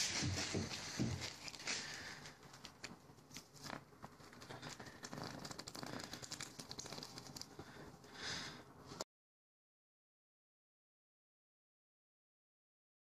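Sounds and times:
crackling and crinkling: 0.0s - 9.0s
sharp ticks: 4.4s - 7.5s.

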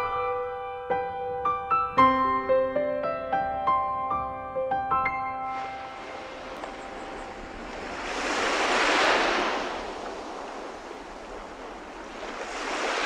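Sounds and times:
ocean waves washing in: 5.4s - 13.0s.

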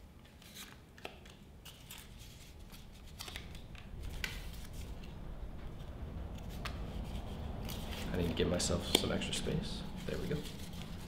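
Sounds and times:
low hum: 2.9s - 8.1s.

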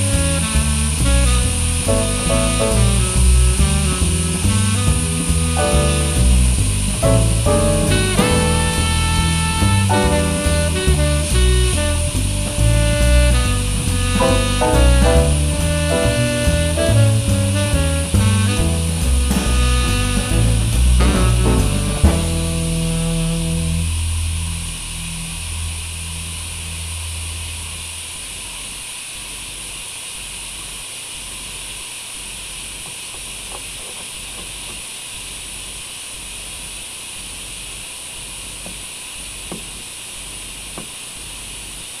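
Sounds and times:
steady high hiss: 0.0s - 33.5s
background music: 0.1s - 23.6s.

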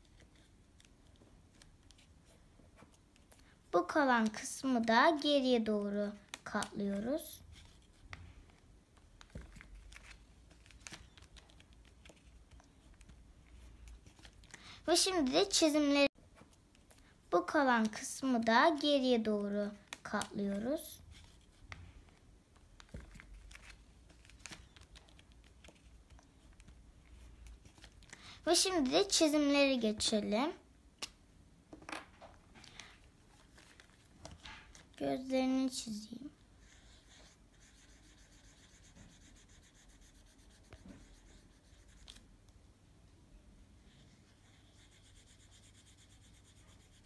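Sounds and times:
marker pen scratching paper: 4.0s - 17.0s, 17.6s - 30.1s, 36.5s - 42.3s, 43.8s - 47.0s
paper being folded: 5.8s - 14.6s, 22.8s - 28.2s.

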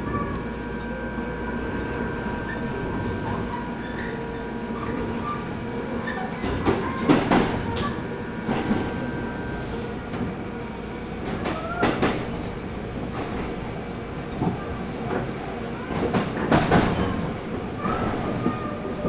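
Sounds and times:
train rumble: 0.0s - 19.0s
train wheel squeal: 2.3s - 10.1s, 14.4s - 19.0s.

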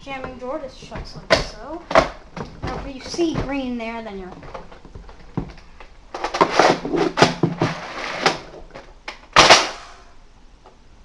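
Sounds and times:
toy blaster firing burst: 9.4s - 10.0s.

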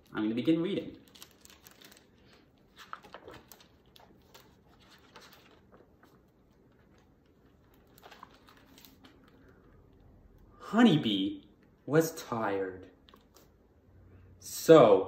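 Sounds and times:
book pages turning: 0.8s - 9.8s.

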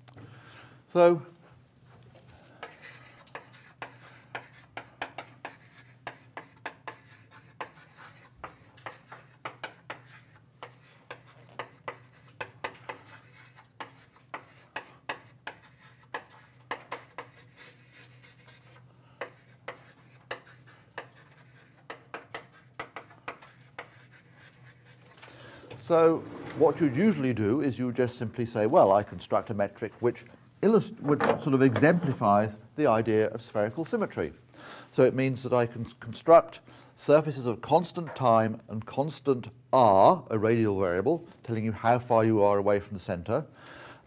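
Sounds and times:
writing on a board: 2.6s - 25.1s.

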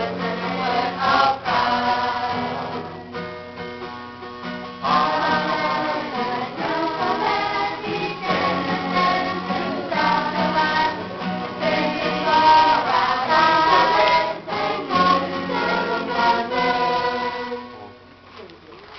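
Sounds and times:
group singing a religious song: 0.0s - 3.0s, 4.8s - 17.8s
acoustic guitars: 0.0s - 18.9s.

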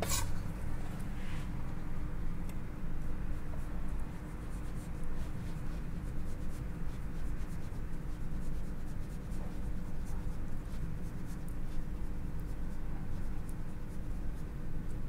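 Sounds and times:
knife cutting on wooden board: 0.0s - 0.3s
steady low hum: 0.0s - 15.0s.

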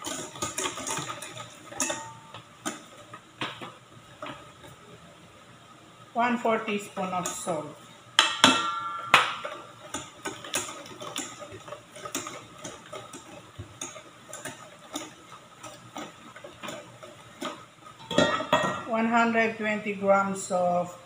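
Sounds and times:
whisk clicking against metal bowl: 0.0s - 3.6s, 9.2s - 17.7s.

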